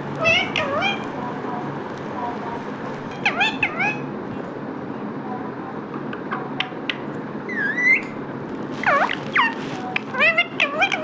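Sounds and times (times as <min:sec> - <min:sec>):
parakeet calling: 0:00.0 - 0:01.2, 0:03.1 - 0:04.1, 0:06.1 - 0:11.0.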